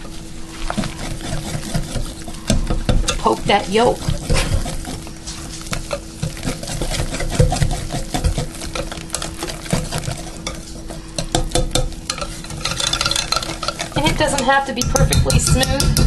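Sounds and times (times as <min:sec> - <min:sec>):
wet stirring of batter: 0:00.0 - 0:16.0
whisk ticking against glass bowl: 0:05.7 - 0:16.0.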